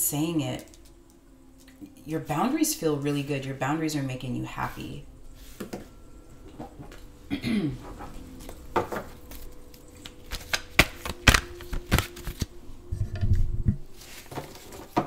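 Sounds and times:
cards being shuffled: 9.3s - 12.5s.

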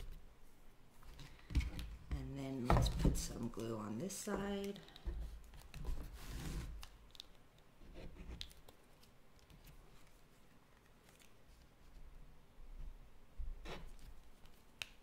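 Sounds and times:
glue tube rustling: 4.3s - 12.3s.

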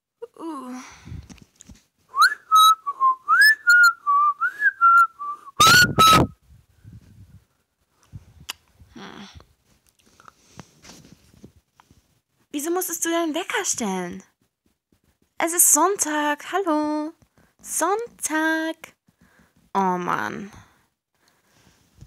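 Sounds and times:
alarm whistling tune: 2.2s - 6.3s.

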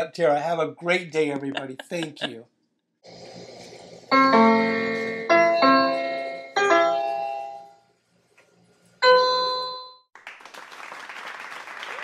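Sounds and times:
electronic piano notes: 4.1s - 7.7s
applause: 10.1s - 12.0s.

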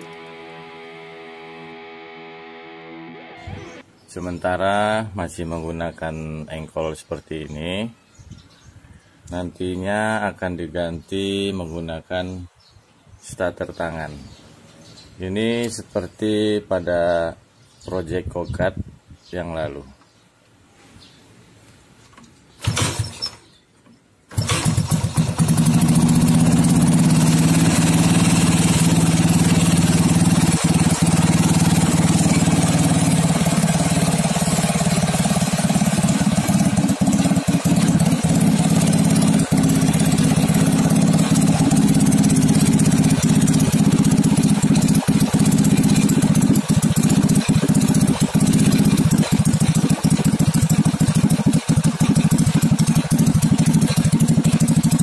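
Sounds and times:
motorcycle engine kick-started: 22.5s - 23.6s, 24.3s - 55.0s
engine running steadily: 24.4s - 55.0s.

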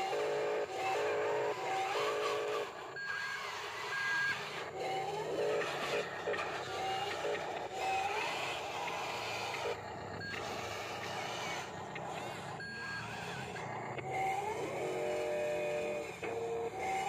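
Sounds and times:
held electronic tone: 0.0s - 17.0s
toy motors and gears whirring: 0.0s - 17.0s
short electronic beeps: 2.6s - 4.5s, 10.1s - 13.5s.

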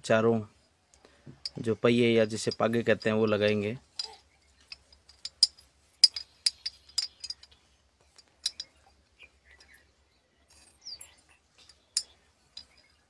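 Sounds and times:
metal rod clinking in glass bottle: 1.4s - 1.7s, 2.3s - 8.9s, 10.5s - 13.0s.

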